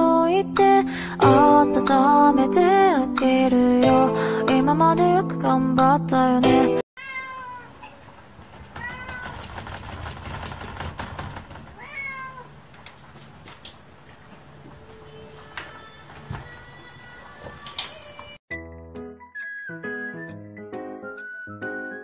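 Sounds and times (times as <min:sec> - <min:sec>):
music: 0:00.0 - 0:06.8, 0:18.5 - 0:22.0
cat meowing: 0:07.0 - 0:07.9, 0:08.8 - 0:09.4, 0:11.8 - 0:12.6.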